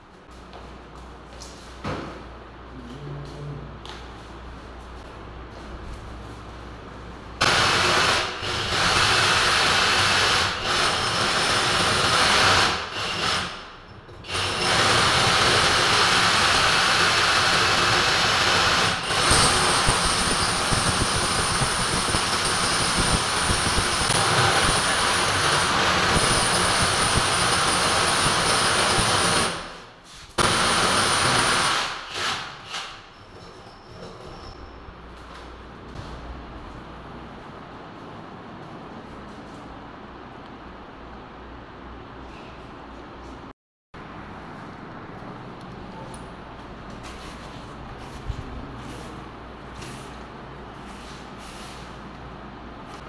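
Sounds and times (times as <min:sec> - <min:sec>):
electric drill boring into wall: 0:07.4 - 0:13.6, 0:14.3 - 0:29.7, 0:30.4 - 0:32.9.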